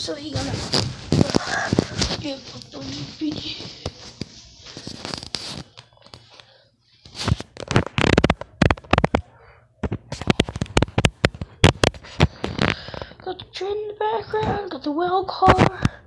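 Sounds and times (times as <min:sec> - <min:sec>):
sharp clicks and crackles: 0:07.3 - 0:13.2.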